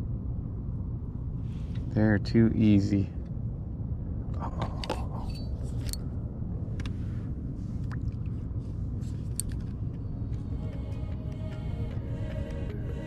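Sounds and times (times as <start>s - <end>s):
low rumble: 0.0s - 13.0s
handling clicks and scrapes: 4.6s - 6.1s, 8.6s - 10.0s.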